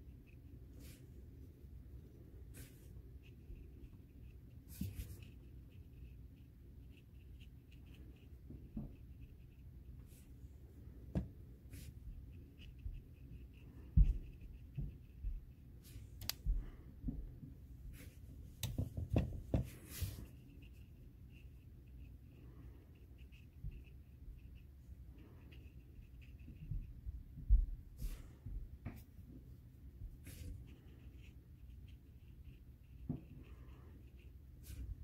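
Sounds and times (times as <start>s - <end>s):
brush dabbing on paper: 0.0s - 35.0s.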